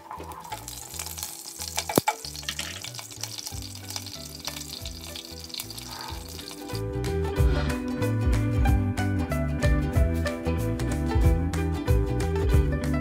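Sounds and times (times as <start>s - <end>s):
spices sizzling in hot oil: 0.0s - 8.1s
background music: 0.0s - 13.0s.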